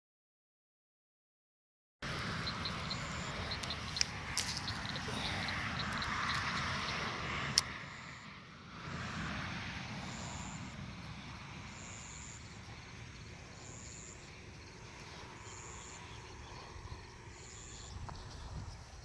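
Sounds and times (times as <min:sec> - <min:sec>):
insect high buzzes: 0:09.0 - 0:19.0.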